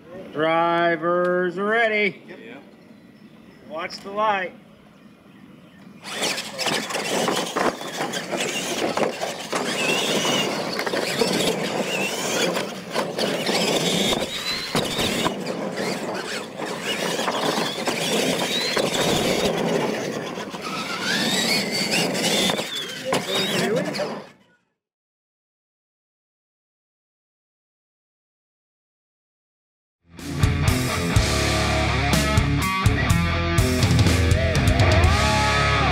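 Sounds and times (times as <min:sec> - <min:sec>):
electric motors whining: 0:05.4 - 0:24.7
tires churning dirt: 0:05.9 - 0:24.4, 0:30.7 - 0:35.9.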